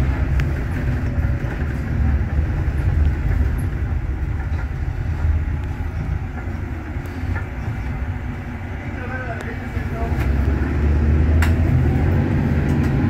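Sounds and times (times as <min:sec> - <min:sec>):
bus engine rumble: 0:00.0 - 0:13.0.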